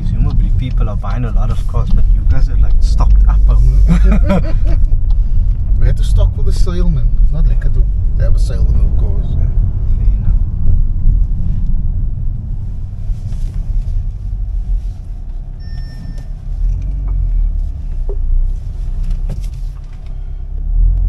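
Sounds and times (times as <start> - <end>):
car engine rumble in cabin: 0.0 - 21.0
short electronic beep: 15.6 - 16.3.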